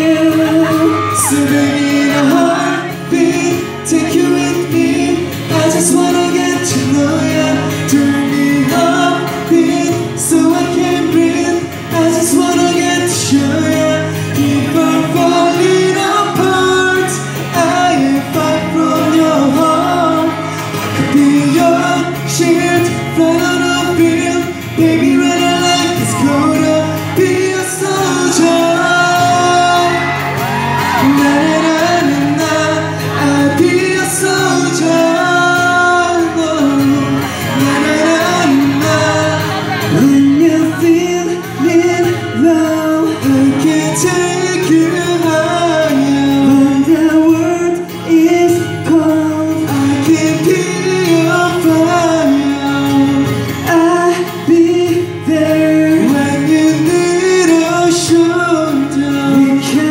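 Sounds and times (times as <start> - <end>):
acoustic guitars strummed: 0.0 - 59.9
person singing: 0.0 - 59.9.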